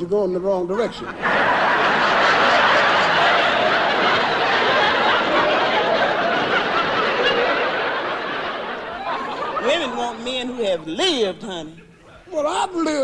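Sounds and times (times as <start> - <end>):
large audience laughing: 1.0 - 11.0.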